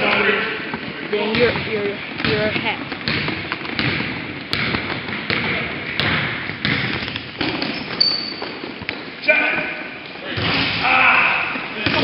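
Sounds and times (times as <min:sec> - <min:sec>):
basketball bouncing: 0:00.8 - 0:09.1, 0:11.8 - 0:12.0
shoe squeak: 0:07.4 - 0:08.8.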